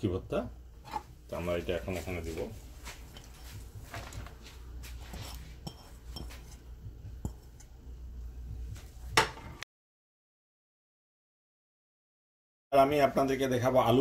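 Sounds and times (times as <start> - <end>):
bowls clinking and tapping: 5.0 - 7.7.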